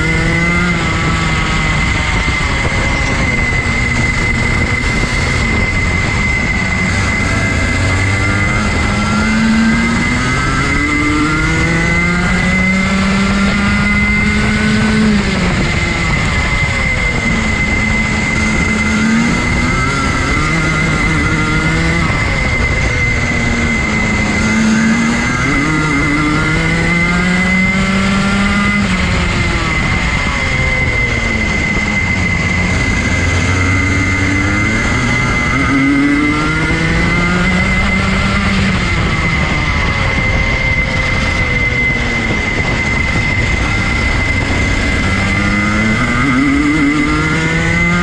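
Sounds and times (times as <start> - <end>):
kart engine revving: 0.0 - 48.0
steady high whine: 0.0 - 48.0.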